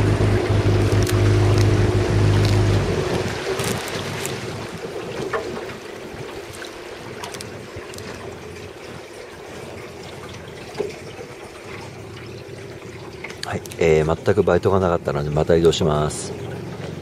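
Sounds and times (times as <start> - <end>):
steady hum: 0.0 - 4.2
water lapping against boat hull: 0.0 - 17.0.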